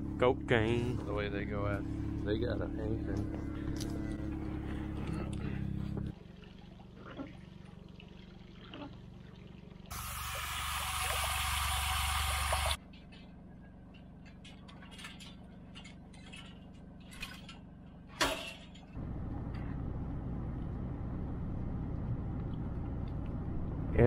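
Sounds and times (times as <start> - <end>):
vehicle driving rumble: 0.0 - 10.2, 12.7 - 24.0
water rushing from a hose: 9.9 - 12.8.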